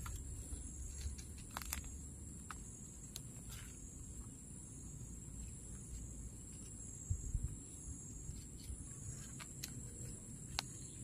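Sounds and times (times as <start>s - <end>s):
shrill insect call: 0.0s - 11.0s.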